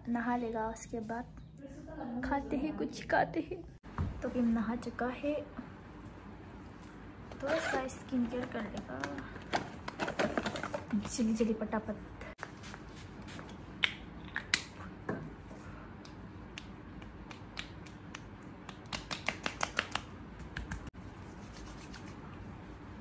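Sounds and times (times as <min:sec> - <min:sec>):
hands patting face: 0:16.0 - 0:20.9.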